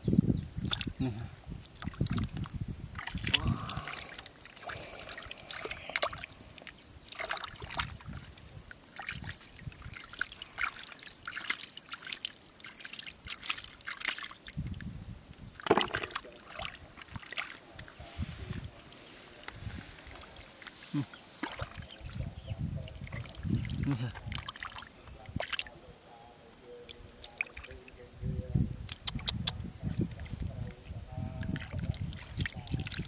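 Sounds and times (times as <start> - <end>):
water splashing and trickling: 0.6 - 25.8, 26.7 - 28.1, 28.9 - 33.0
hands squelching in wet mud: 1.7 - 14.6, 15.6 - 22.2, 22.9 - 25.7, 31.4 - 33.0.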